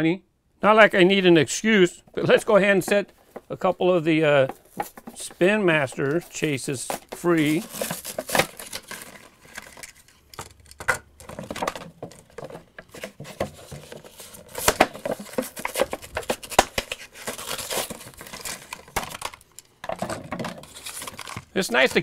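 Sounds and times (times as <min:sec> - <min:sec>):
plastic packaging crinkling: 0:04.4 - 0:10.3, 0:11.3 - 0:22.0
cardboard tearing: 0:06.2 - 0:09.4, 0:13.0 - 0:19.3, 0:20.6 - 0:22.0.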